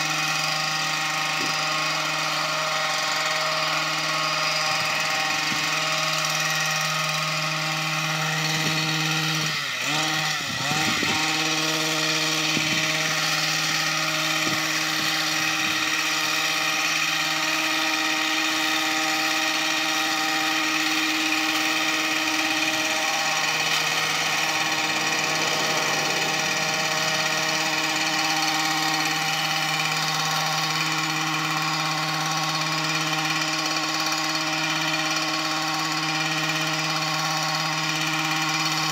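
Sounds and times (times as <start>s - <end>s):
small gas engine running: 0.0s - 38.9s.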